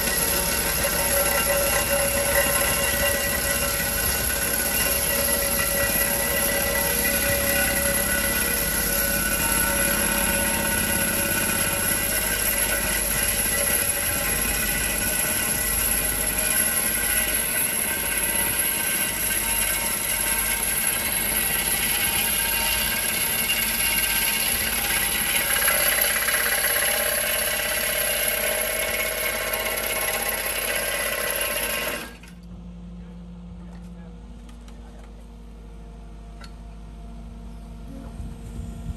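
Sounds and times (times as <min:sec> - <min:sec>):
hydraulic hammer hammering: 0:00.0 - 0:32.3
excavator engine under load: 0:00.0 - 0:32.5.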